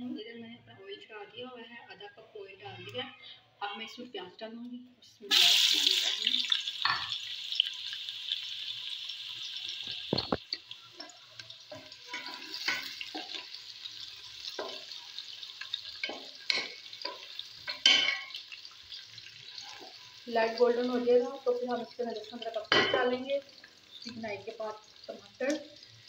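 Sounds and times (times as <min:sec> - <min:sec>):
onions sizzling in hot oil: 0:05.2 - 0:26.0.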